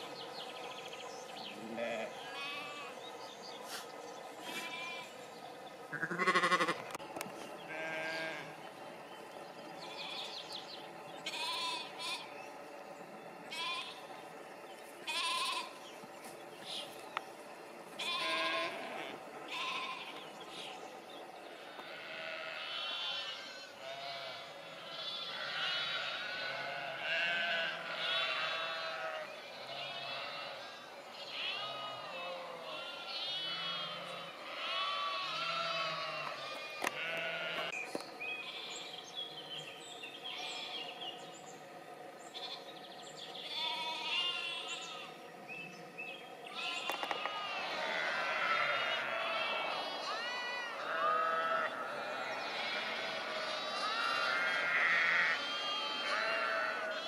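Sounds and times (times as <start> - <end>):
sheep bleating: 1.5 - 3.0, 4.4 - 5.2, 5.9 - 6.9, 7.7 - 8.6, 11.2 - 12.3, 13.5 - 14.0, 15.1 - 15.8, 18.0 - 20.6, 21.7 - 37.8, 43.4 - 45.2, 46.5 - 57.0.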